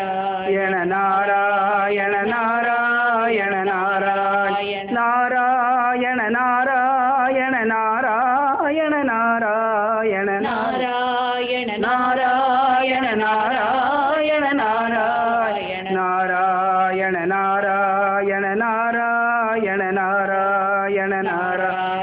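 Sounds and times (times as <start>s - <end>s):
voices chanting a melody: 10.4s - 15.9s.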